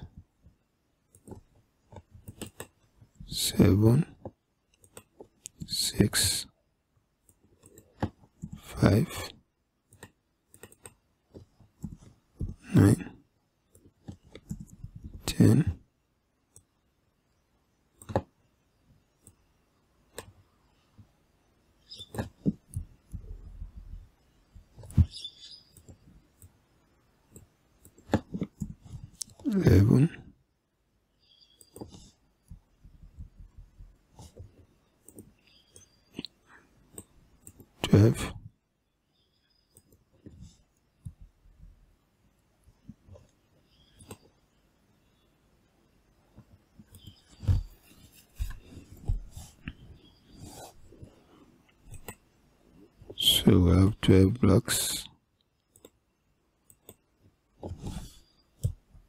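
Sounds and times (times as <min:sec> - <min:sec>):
mouse and keyboard clicks: 0:01.1 - 0:02.8, 0:09.9 - 0:12.1, 0:18.0 - 0:18.4, 0:21.9 - 0:23.6, 0:31.4 - 0:33.3, 0:43.2 - 0:44.3, 0:51.8 - 0:52.2.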